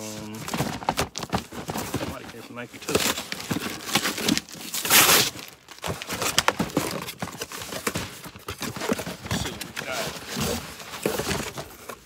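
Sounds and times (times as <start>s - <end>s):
paper crinkling: 0.0s - 12.0s
cardboard boxes knocking: 0.3s - 4.6s, 5.8s - 12.0s.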